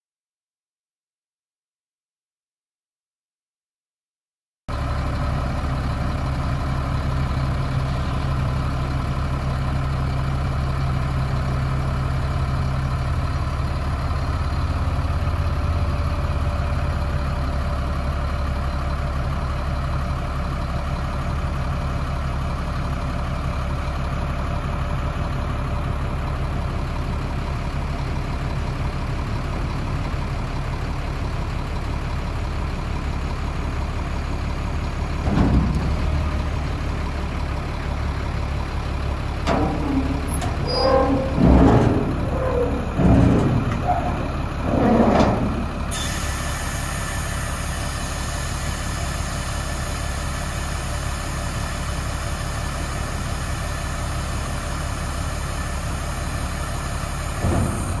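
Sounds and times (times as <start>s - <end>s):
diesel truck engine running: 4.7s - 58.0s
hydraulic hoist raising: 39.5s - 46.8s.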